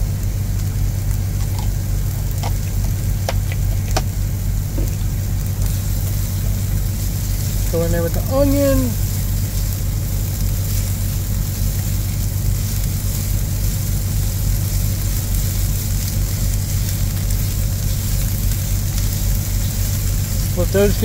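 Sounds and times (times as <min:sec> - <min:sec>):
steady low hum: 0:00.0 - 0:21.0
vegetables sizzling in skillet: 0:00.0 - 0:21.0.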